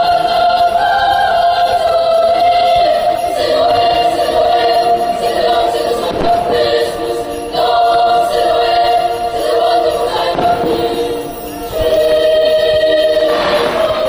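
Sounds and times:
choral music with orchestra: 0:00.0 - 0:14.0
faint firework bangs: 0:06.1 - 0:06.7, 0:10.3 - 0:11.6.

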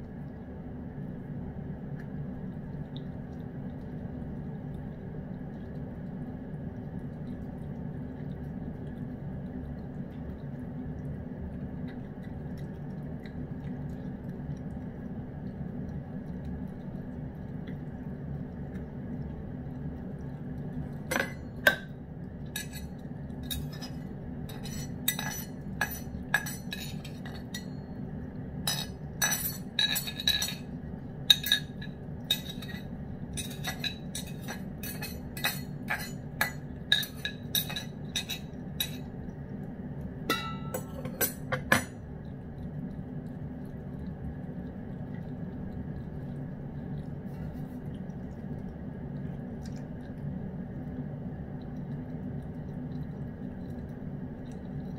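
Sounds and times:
steady low hum: 0:00.0 - 0:54.9
metal fork clinking in bowl: 0:23.5 - 0:27.7, 0:28.7 - 0:30.6, 0:33.4 - 0:39.0, 0:40.3 - 0:41.9.

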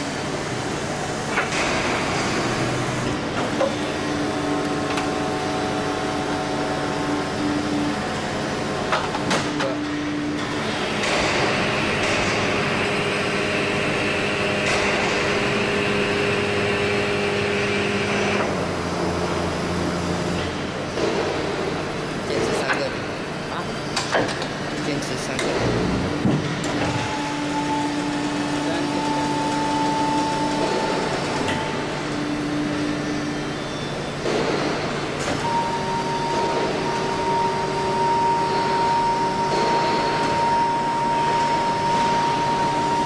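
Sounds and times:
machine humming with whining tones: 0:00.0 - 0:43.0.

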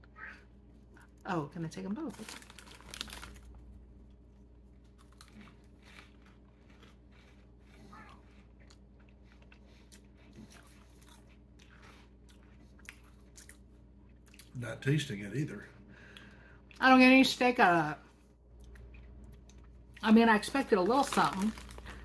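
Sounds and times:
low steady hum: 0:00.0 - 0:22.0
crunching snacks being chewed: 0:02.1 - 0:14.6, 0:18.6 - 0:22.0.

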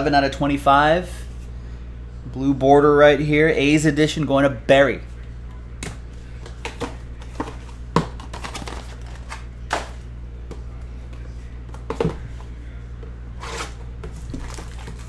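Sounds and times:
steady low hum: 0:00.0 - 0:15.0
cardboard and wrapper rustling: 0:06.7 - 0:09.9, 0:13.4 - 0:15.0.

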